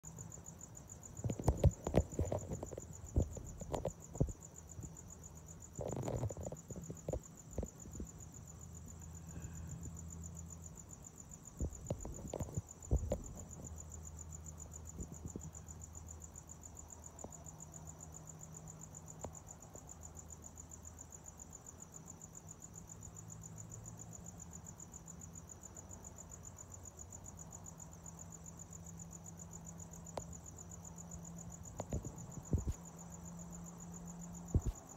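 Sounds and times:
crickets chirping: 0:00.0 - 0:34.9
knocks and bumps: 0:01.2 - 0:04.4, 0:31.8 - 0:32.8, 0:34.5 - 0:34.9.

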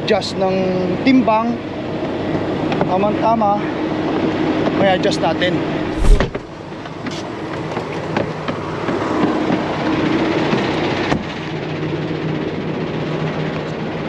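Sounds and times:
sharp bang: 0:06.0 - 0:06.4.

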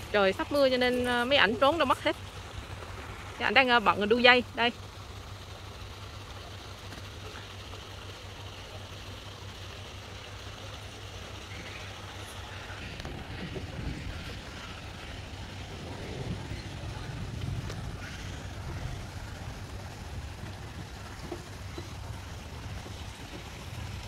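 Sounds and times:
low rumble: 0:11.4 - 0:24.0.

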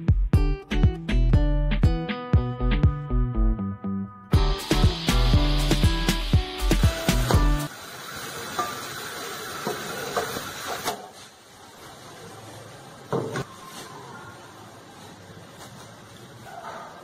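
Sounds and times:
background music: 0:00.0 - 0:07.7.

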